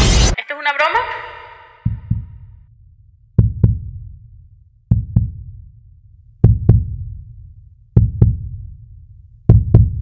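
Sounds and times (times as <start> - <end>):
heartbeat thumps: 1.8 - 2.7, 3.3 - 4.2, 4.9 - 5.7, 6.4 - 7.3, 7.9 - 8.8, 9.4 - 10.0.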